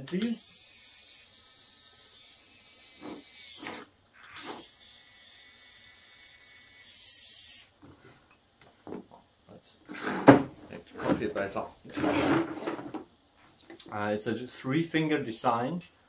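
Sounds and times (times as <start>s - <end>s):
small gear motors whirring: 0.2s - 7.7s.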